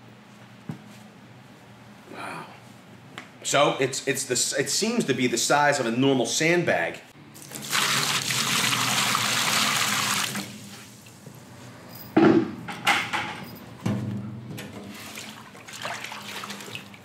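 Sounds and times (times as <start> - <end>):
water pouring into wheelbarrow: 7.4 - 10.7, 14.8 - 17.0.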